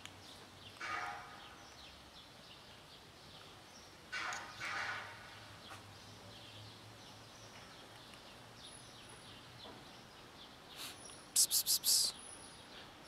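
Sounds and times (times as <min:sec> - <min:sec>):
person hissing psst: 0:10.8 - 0:12.2.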